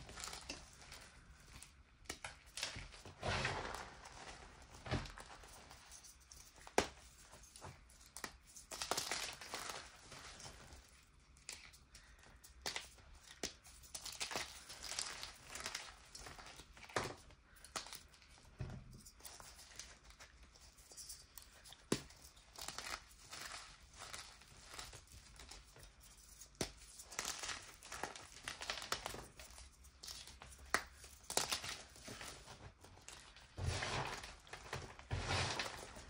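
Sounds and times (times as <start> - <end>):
chalk pieces snapping: 11.4 - 16.6, 24.9 - 32.0
chalk crumbling gritty rustle: 19.1 - 36.0.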